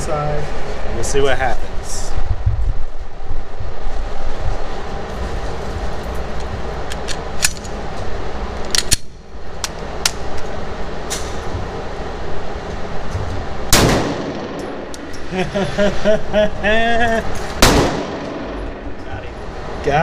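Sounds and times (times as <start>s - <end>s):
steady low rumble: 0.0s - 20.0s
sharp cracks and clicks: 8.6s - 10.5s
loud pistol gunshot: 13.7s - 14.7s, 17.6s - 18.6s.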